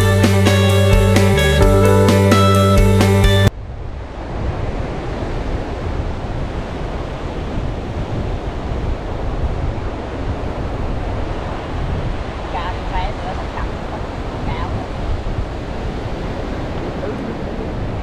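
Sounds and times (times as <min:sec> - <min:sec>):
wind rumbling on microphone: 0:03.5 - 0:18.0
surf breaking on beach: 0:04.0 - 0:18.0.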